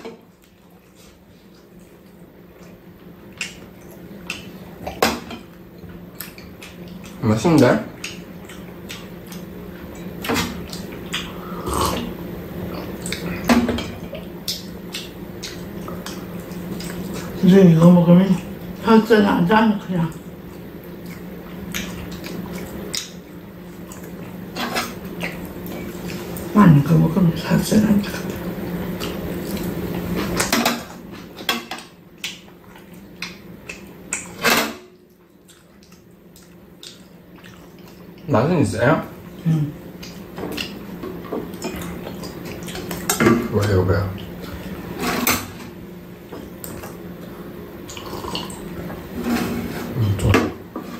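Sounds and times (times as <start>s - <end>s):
steady low hum: 0.0s - 50.9s
person chewing food: 0.2s - 7.2s, 7.9s - 17.4s, 20.1s - 26.5s, 28.1s - 31.4s, 32.1s - 34.4s, 35.0s - 38.3s, 39.2s - 43.2s, 45.8s - 50.2s.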